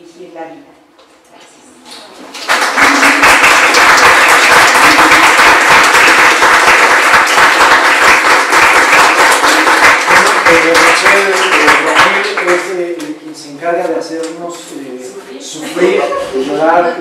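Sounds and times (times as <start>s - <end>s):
audience applauding loudly: 2.4s - 13.1s.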